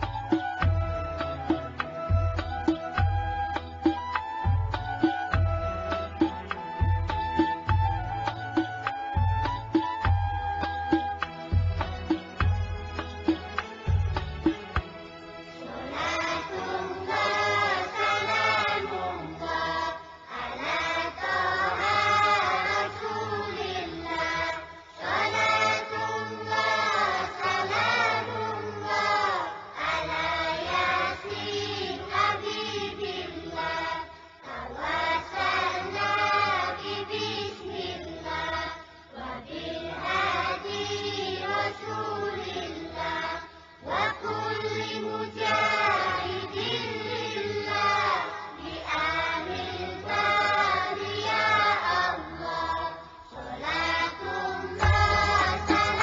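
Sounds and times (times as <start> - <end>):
group singing chant-like song: 15.6 - 56.0.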